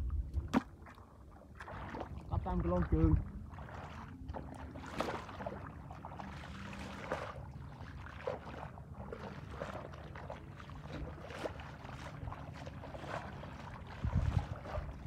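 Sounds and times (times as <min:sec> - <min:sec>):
bare feet squelching in mud: 0:03.6 - 0:15.0.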